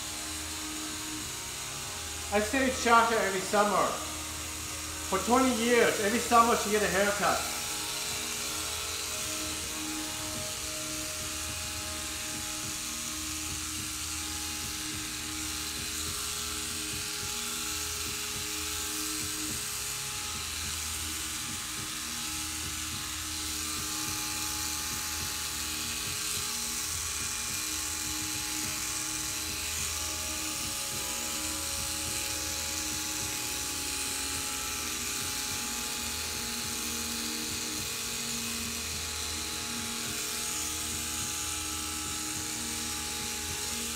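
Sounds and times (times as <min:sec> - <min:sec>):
electric hair clippers buzzing: 0:00.0 - 0:43.9.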